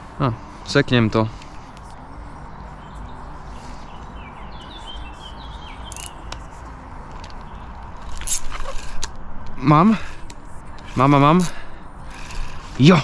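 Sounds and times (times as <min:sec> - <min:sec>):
steady background rush: 0:00.0 - 0:13.0
small birds chirping: 0:00.2 - 0:09.0.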